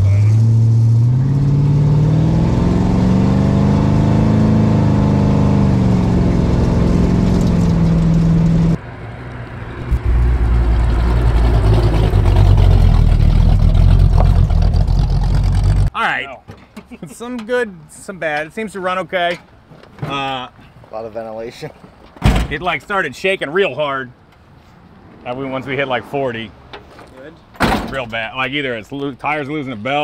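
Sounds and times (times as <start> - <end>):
car driving by rumbling: 0.0 - 15.9
car engine pulling hard: 0.0 - 15.9
thump: 22.2 - 22.6, 27.6 - 28.0.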